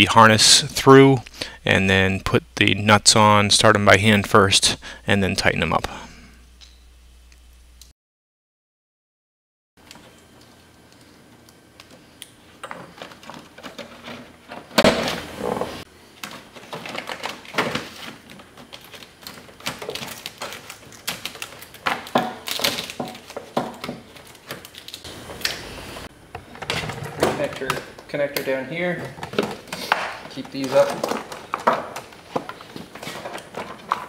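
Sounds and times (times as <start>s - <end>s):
plastic sheet crinkling: 16.6s - 23.5s.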